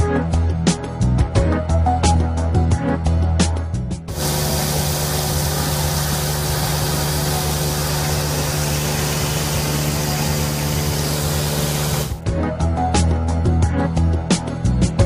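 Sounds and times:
saw hissing: 4.1s - 12.2s
stone saw cutting with hum: 4.1s - 12.2s.

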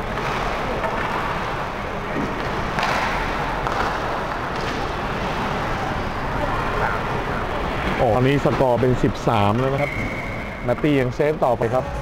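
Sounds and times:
sharp knocks of sticks and puck: 2.2s - 5.4s.

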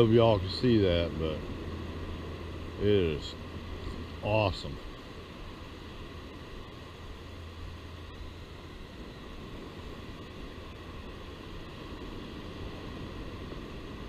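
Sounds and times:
calm sea hiss: 0.0s - 14.0s.

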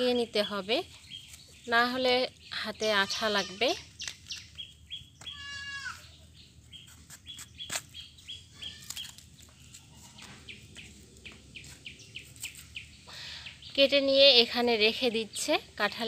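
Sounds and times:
goat bleating: 5.3s - 6.1s.

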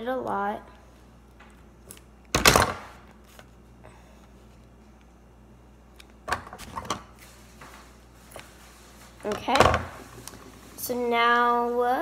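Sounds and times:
handling knocks and rustles: 6.3s - 11.1s.

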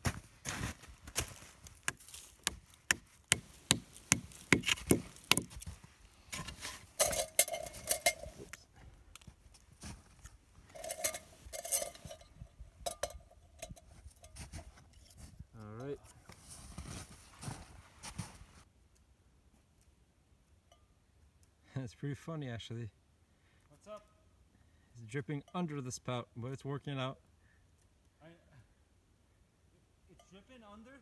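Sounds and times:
sharp knocks: 1.9s - 5.5s
metal pot clinking and scraping: 6.3s - 8.5s, 10.7s - 15.2s.

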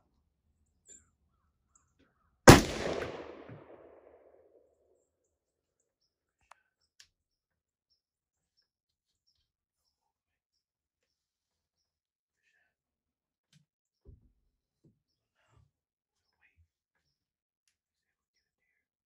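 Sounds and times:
rifle shot echoing: 2.5s - 4.2s.

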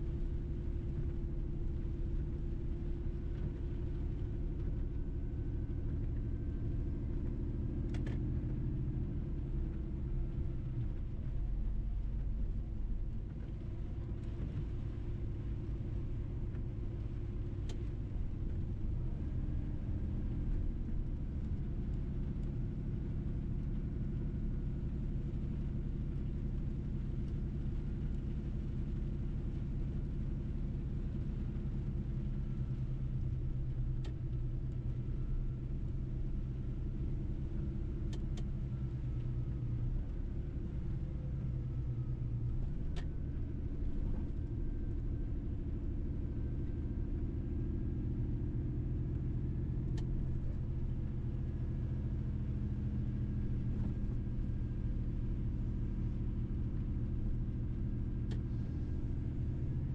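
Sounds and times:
low road rumble: 0.0s - 59.9s
faint clicks: 58.2s - 58.6s.

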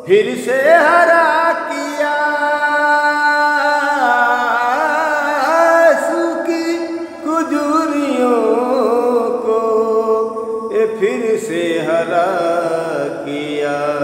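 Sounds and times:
man breathing: 6.9s - 7.3s.

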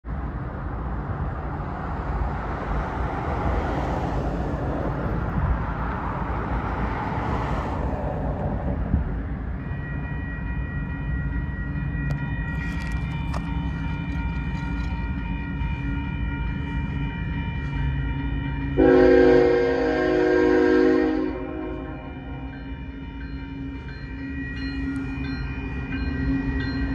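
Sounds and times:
road traffic rumbling: 0.0s - 26.9s
railroad crossing warning bells: 0.1s - 26.9s
locomotive air horn blast: 18.8s - 22.4s.

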